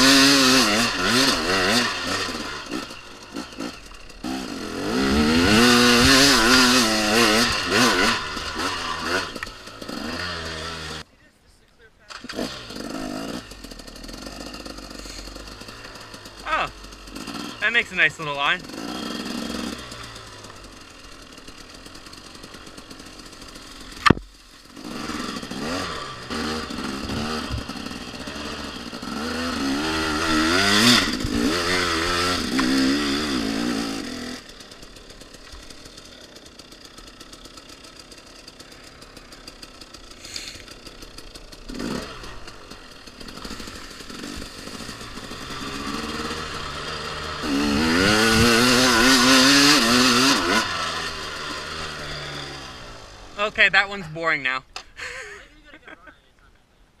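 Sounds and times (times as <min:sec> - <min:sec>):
dirt bike engine revving: 0:00.0 - 0:11.1, 0:12.0 - 0:56.0
sharp knock: 0:24.0 - 0:24.3.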